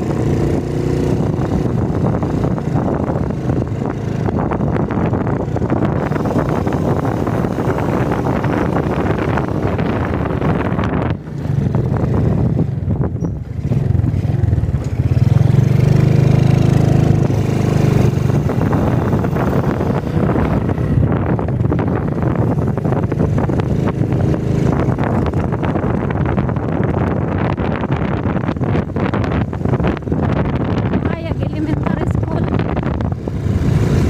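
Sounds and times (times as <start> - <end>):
small motorcycle engine running: 0.0 - 34.0
steady rushing noise: 0.0 - 34.0.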